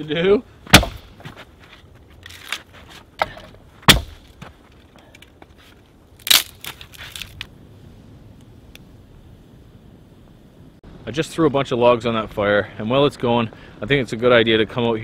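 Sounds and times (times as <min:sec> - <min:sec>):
wood cracking and splintering: 0:00.7 - 0:01.2, 0:02.2 - 0:05.4, 0:06.1 - 0:07.5.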